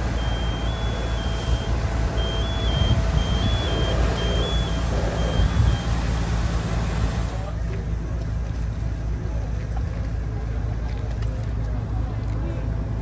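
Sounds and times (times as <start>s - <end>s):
electronic warning beeper: 0.0s - 6.0s
fire truck engine rumbling: 0.0s - 13.0s.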